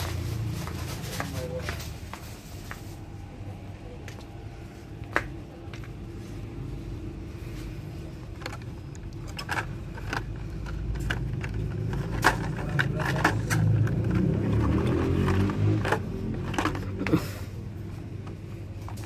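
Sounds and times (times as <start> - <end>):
plastic packs clicking together: 8.3 - 17.3.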